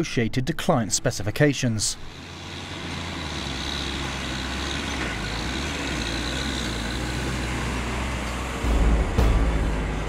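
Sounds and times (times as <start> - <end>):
diesel engine running: 2.1 - 10.0.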